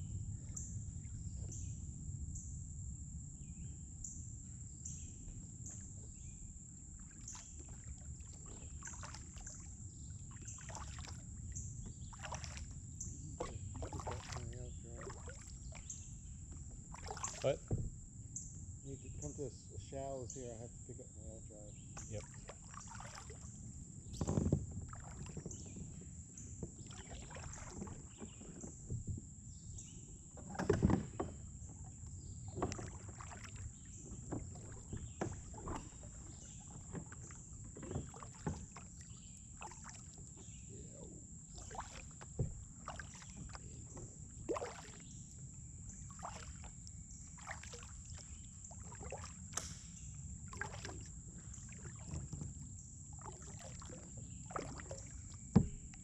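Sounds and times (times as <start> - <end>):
kayak paddle splashes: 4.9 - 56.0
low wash of moving water: 6.9 - 17.7, 22.0 - 23.9, 31.6 - 56.0.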